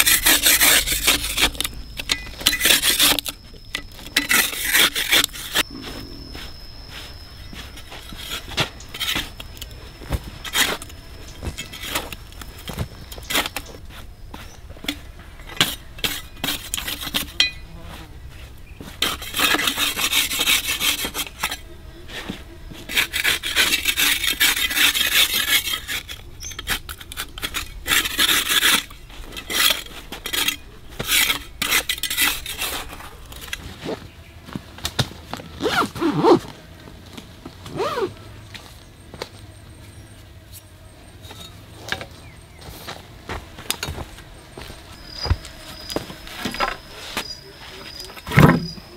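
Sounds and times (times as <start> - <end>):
rasping on wood: 0.0 - 1.6, 18.8 - 33.0.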